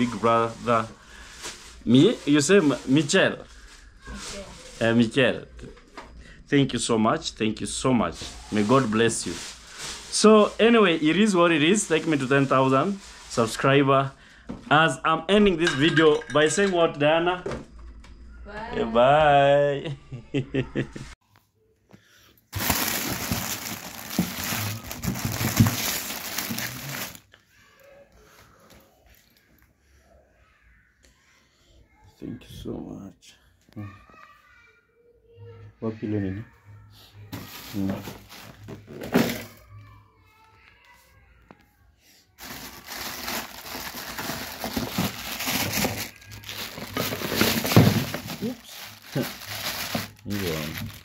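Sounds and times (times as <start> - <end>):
plastic packets rustling: 0.0 - 5.2, 8.1 - 13.8, 22.5 - 27.4, 37.3 - 39.6, 42.4 - 51.0.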